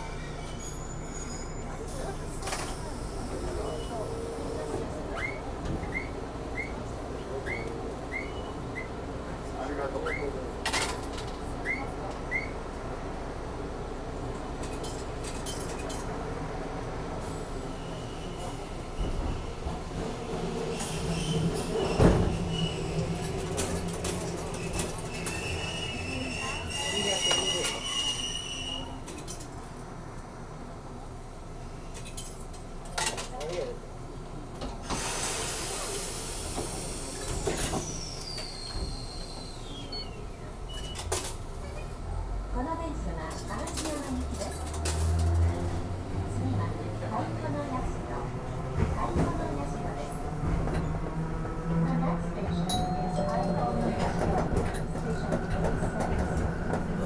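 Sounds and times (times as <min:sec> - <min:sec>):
tram braking hiss: 0:00.0 - 0:09.1, 0:20.2 - 0:29.0, 0:34.8 - 0:41.2
tram rumbling: 0:00.0 - 0:57.0.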